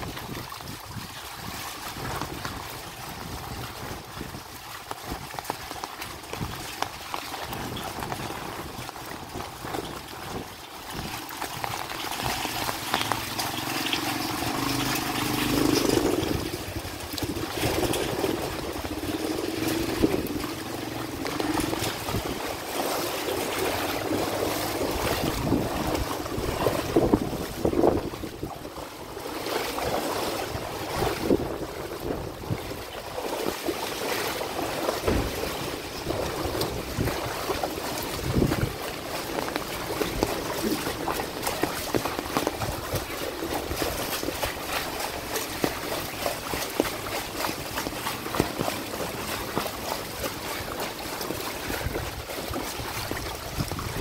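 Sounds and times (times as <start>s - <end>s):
rain and running water: 0.0s - 54.0s
vehicles splashing through water: 0.0s - 54.0s
engine hum: 11.4s - 33.6s.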